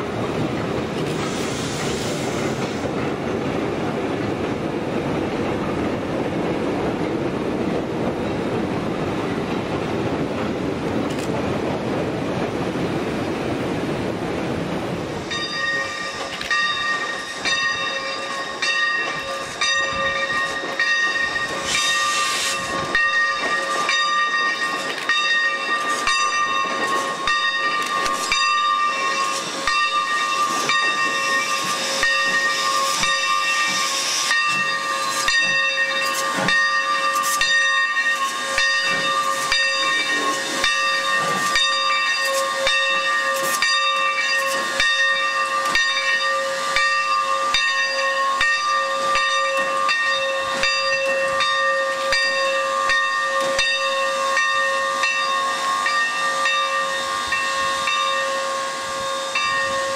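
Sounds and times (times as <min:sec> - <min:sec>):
train cars rumbling over trestle: 0:00.0 - 0:59.9
steam hissing: 0:00.8 - 0:03.0, 0:15.1 - 0:59.9
steam whistle: 0:51.9 - 0:59.9.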